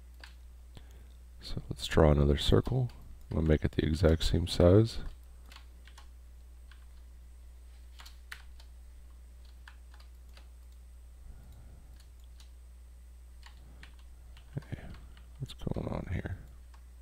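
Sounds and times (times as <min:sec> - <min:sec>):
faint steady low hum: 0:00.0 - 0:17.0
computer keyboard keys clicking: 0:00.1 - 0:00.4, 0:02.5 - 0:06.1, 0:06.7 - 0:07.1, 0:08.0 - 0:08.7, 0:09.4 - 0:10.8, 0:11.9 - 0:12.5, 0:13.4 - 0:15.5.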